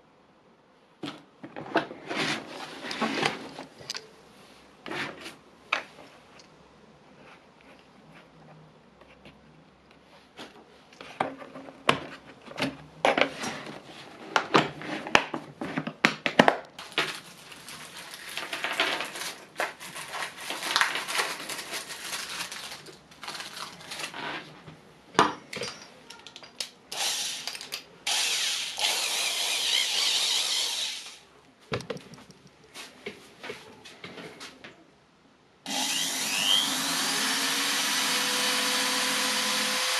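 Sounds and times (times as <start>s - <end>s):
drill bits clicking and rattling: 25.6s - 31.2s, 35.7s - 39.9s
cordless drill running: 26.9s - 27.5s, 28.1s - 31.2s, 35.7s - 39.9s.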